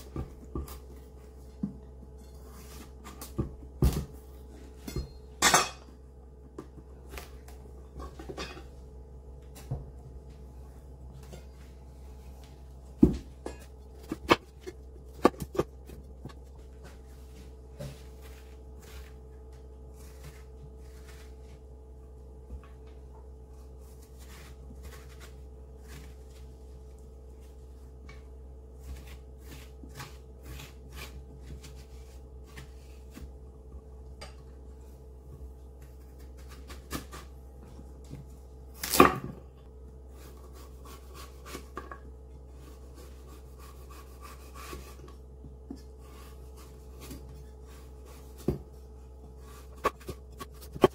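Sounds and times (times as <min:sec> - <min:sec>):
steady hum: 0:00.0 - 0:50.9.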